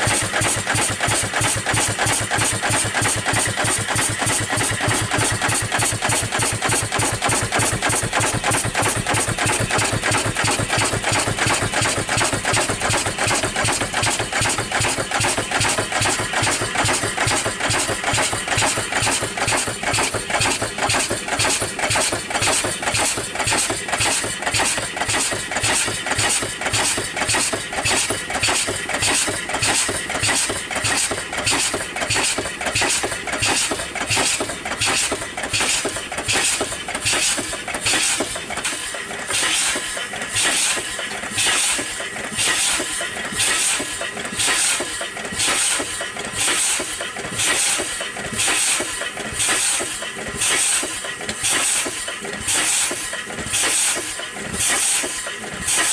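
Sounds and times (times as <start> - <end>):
steam engine exhaust chuffing: 0.0 - 55.9
steam hissing: 0.0 - 55.9.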